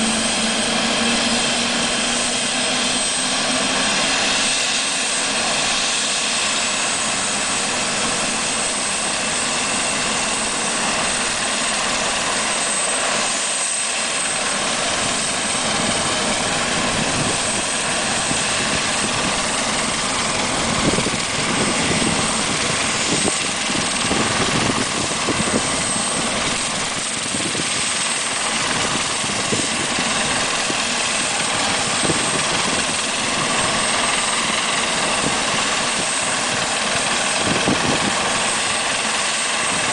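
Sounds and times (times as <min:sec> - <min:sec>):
helicopter rotor rushing: 0:00.0 - 0:39.9
helicopter turbine engine: 0:00.0 - 0:39.9
high turbine whine: 0:00.0 - 0:39.9.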